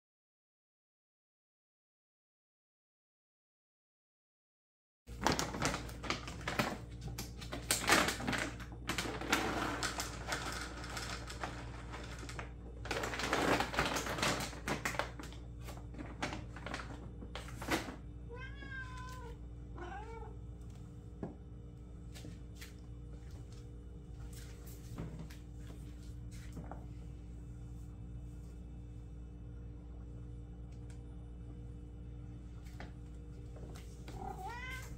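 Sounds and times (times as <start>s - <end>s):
rustling of cat food: 5.1s - 20.9s, 22.1s - 28.6s, 32.5s - 34.9s
cat meowing: 18.3s - 20.4s, 34.1s - 34.9s.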